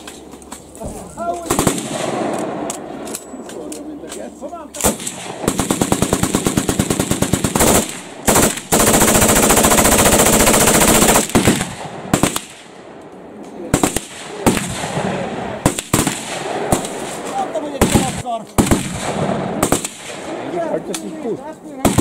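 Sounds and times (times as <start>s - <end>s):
machine guns firing: 1.4s - 2.7s, 4.8s - 12.7s, 13.7s - 20.5s, 21.8s - 22.0s.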